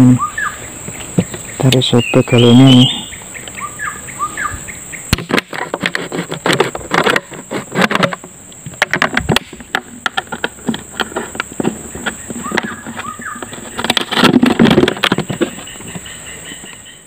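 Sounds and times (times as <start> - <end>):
plastic bottle crackling as blade cuts: 5.1 - 15.7.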